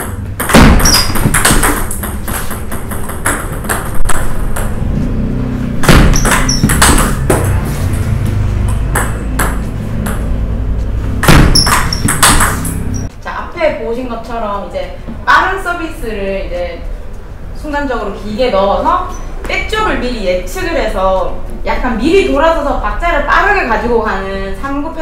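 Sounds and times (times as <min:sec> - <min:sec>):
table tennis ball hits: 0:00.0 - 0:04.9, 0:05.8 - 0:10.4, 0:11.2 - 0:13.1.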